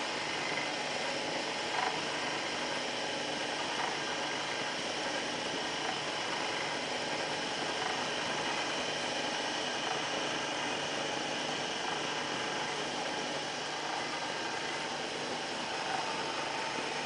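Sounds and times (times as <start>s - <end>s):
electric oil press running: 0.0s - 17.0s.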